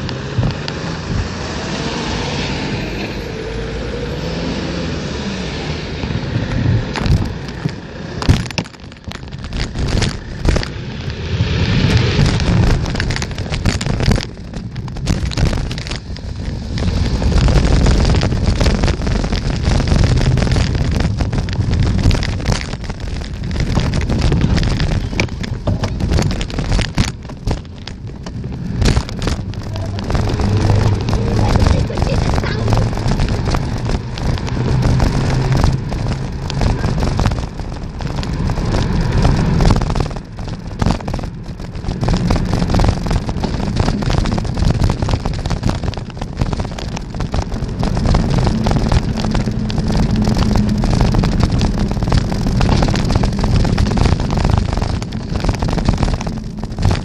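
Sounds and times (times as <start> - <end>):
wind buffeting microphone: 0.0 - 57.0
bicycle knocks and rattles: 6.8 - 10.8, 11.4 - 57.0.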